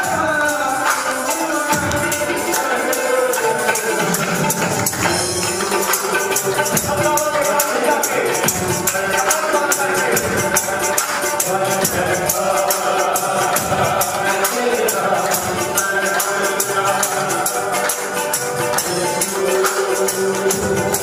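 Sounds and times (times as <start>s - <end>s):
shaker rattling a beat: 0.0s - 21.0s
worship singing: 0.0s - 21.0s
hand clapping: 3.9s - 12.6s, 13.5s - 21.0s.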